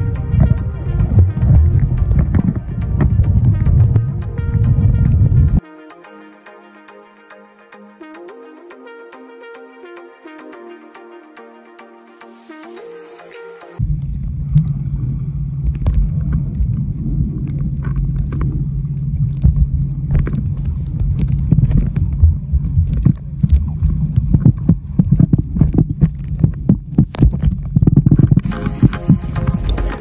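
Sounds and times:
dense underwater rumble: 0.0s - 5.6s, 13.8s - 30.0s
low underwater hum: 0.0s - 5.6s, 13.8s - 30.0s.

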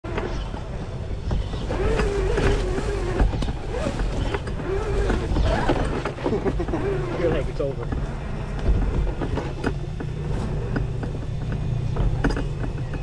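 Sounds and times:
electric motor whining: 0.1s - 9.2s
knocks and scrapes: 0.1s - 13.0s.

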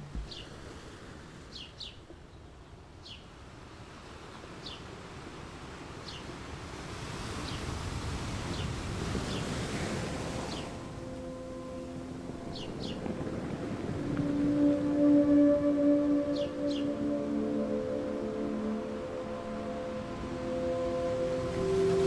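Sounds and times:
surf hiss: 0.0s - 2.0s, 3.3s - 22.0s
wave breaking: 9.1s - 22.0s
steady low tone: 10.7s - 22.0s
bird chirps: 16.2s - 18.4s.

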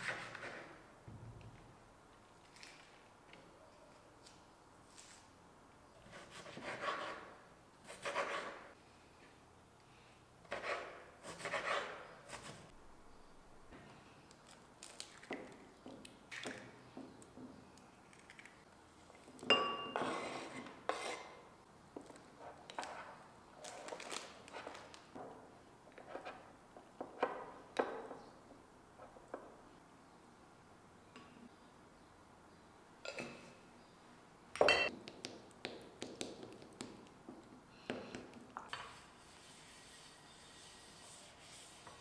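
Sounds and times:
ceramic bowl clink: 19.5s - 20.2s, 34.6s - 34.9s
knife scraping cutting board: 20.0s - 21.4s.

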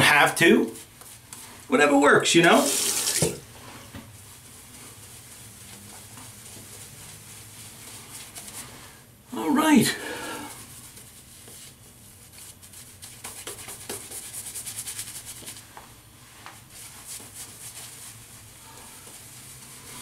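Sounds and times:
shaving brush swishing on stubble: 2.4s - 9.7s, 10.6s - 20.0s.

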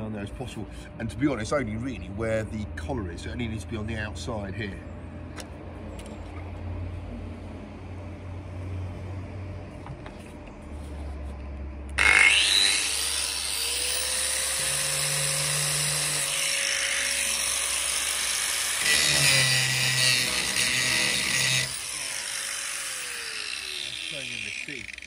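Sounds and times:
angle grinder grinding steel: 12.0s - 25.0s.

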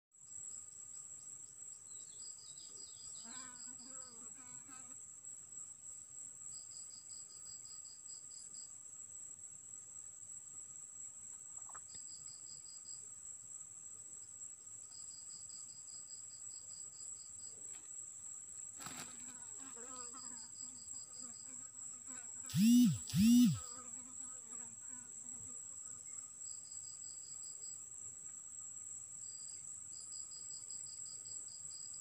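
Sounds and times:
rapid chirping pulses: 22.5s - 23.6s
wavering call: 22.5s - 23.6s
high-pitched insect drone: 22.5s - 23.7s.

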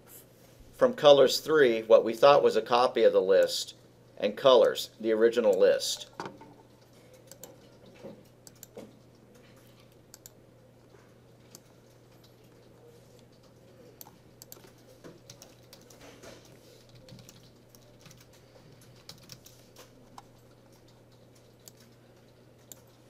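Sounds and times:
low steady hum: 0.0s - 23.0s
keyboard typing: 5.6s - 10.4s, 11.3s - 23.0s.

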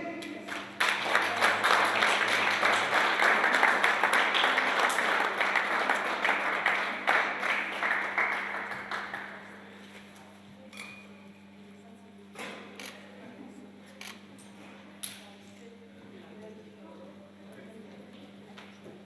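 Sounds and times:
audience applauding: 0.4s - 9.6s.

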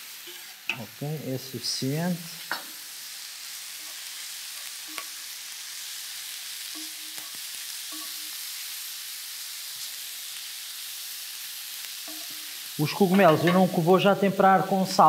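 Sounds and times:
mushrooms sizzling in a pan: 0.0s - 15.0s.

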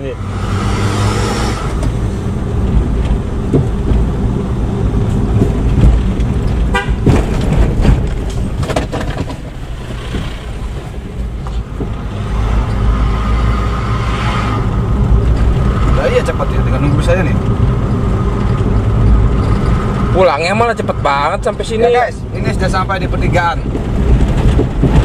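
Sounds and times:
car engine and road rumble: 0.0s - 25.0s
car horn toot: 6.7s - 7.2s.

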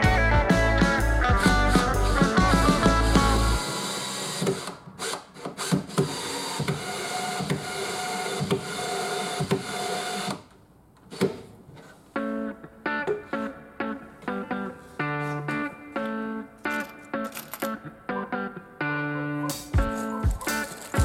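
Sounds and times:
cordless drill whining: 1.4s - 10.4s.

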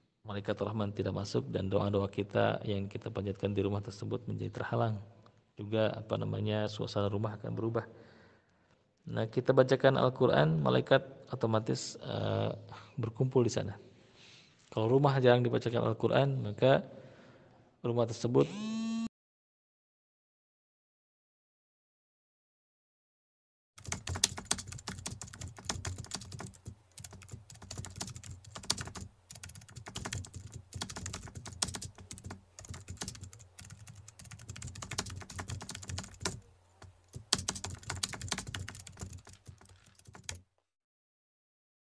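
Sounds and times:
keyboard typing clicks: 23.8s - 40.4s.

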